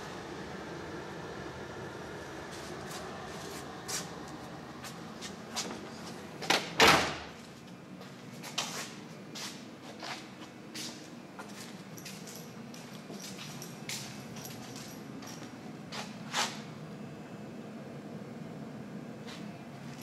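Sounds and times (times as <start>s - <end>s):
car liftgate slamming shut: 6.5s - 7.3s.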